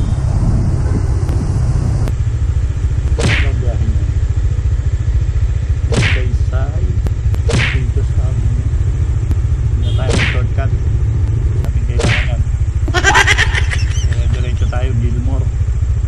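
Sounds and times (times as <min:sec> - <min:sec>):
motorcycle engine idling: 0:00.0 - 0:16.0
short falling swishes: 0:03.1 - 0:03.6, 0:05.8 - 0:06.4, 0:07.4 - 0:07.9, 0:09.9 - 0:10.6, 0:11.9 - 0:12.4.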